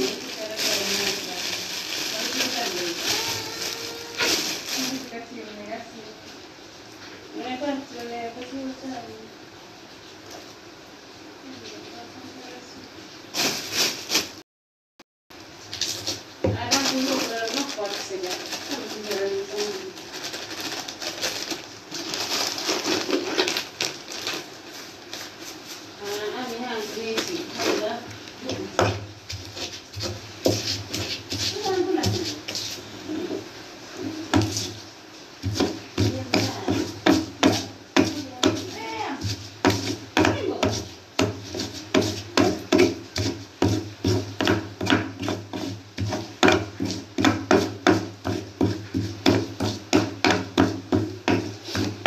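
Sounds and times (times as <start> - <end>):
plastic bag crinkling: 0.0 - 5.2, 13.3 - 14.4, 15.6 - 28.5
pestle grinding scrapes: 24.3 - 33.4, 34.1 - 52.0
stone pestle knocking in mortar: 35.4 - 52.0.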